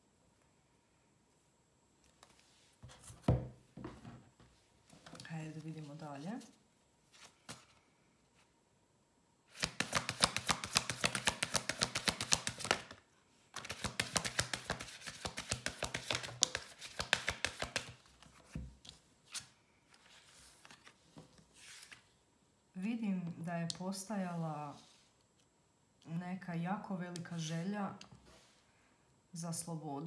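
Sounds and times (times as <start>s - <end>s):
cards being shuffled: 9.5s - 22.1s
cards tapped on table: 9.6s - 12.9s, 13.6s - 17.9s.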